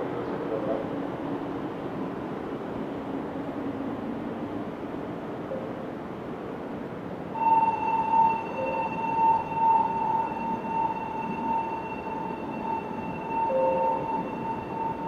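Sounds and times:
electronic platform signal tone: 7.4s - 15.0s.

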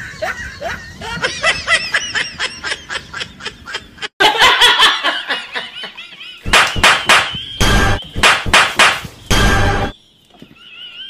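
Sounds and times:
man laughing loudly: 0.0s - 6.5s.

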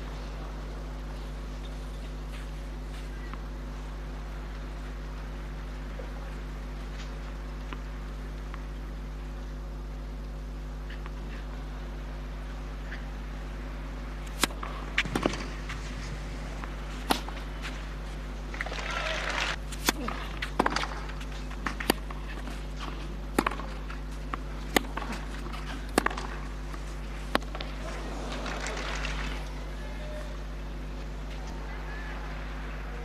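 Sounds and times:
steady low hum: 0.0s - 33.0s
tennis ball hitting rackets: 14.2s - 29.4s.

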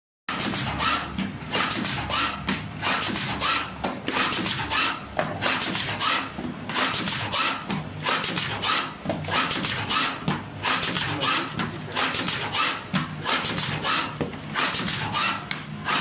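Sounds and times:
machine mechanical clatter: 0.3s - 3.6s, 4.2s - 16.0s
sharp machine clicks: 9.4s - 9.9s.

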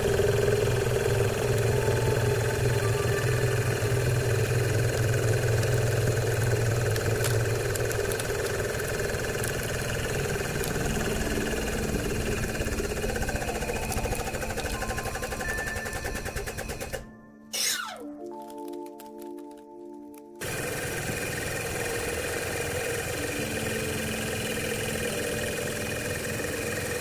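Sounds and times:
hydraulic press motor and pump: 0.0s - 18.1s, 20.4s - 27.0s
plastic wrapper crackling: 4.6s - 16.0s, 17.9s - 20.5s.

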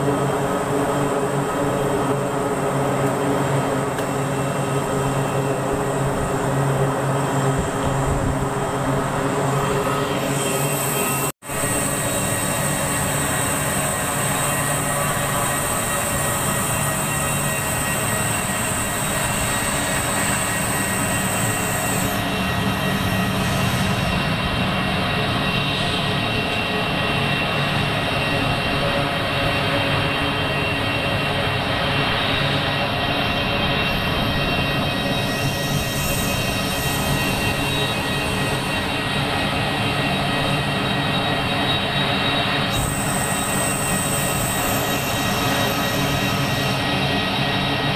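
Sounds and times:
turboprop engines droning: 0.0s - 47.9s
thin high whine: 33.8s - 47.9s.

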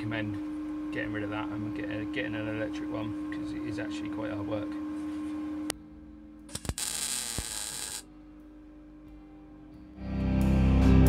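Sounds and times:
steady hum: 0.0s - 10.0s
welding burst: 6.5s - 8.0s
background music: 8.1s - 11.0s.

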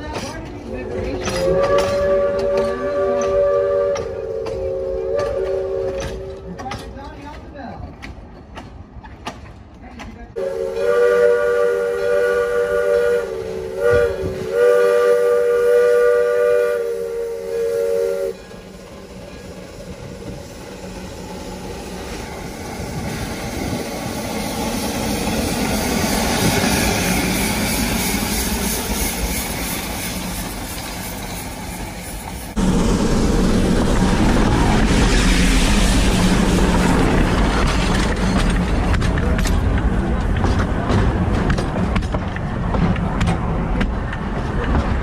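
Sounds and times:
steam locomotive running: 0.0s - 45.0s
steam whistle chord blasts: 1.4s - 6.4s, 10.4s - 18.4s
steam venting: 10.4s - 39.0s.

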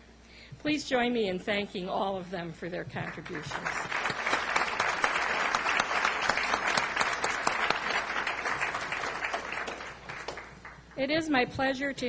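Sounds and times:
audience applauding: 3.2s - 10.9s.

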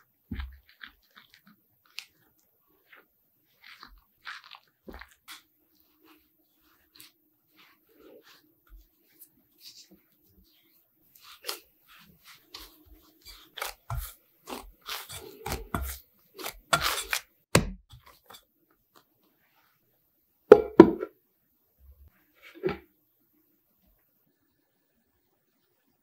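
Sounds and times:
hands kneading sticky dough: 0.0s - 19.6s.

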